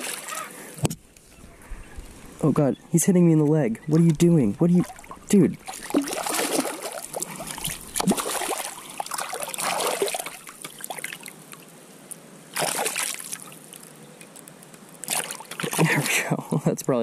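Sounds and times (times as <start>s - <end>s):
fish splashing in water: 0.0s - 0.7s, 4.8s - 11.6s, 12.5s - 14.0s, 15.0s - 16.3s.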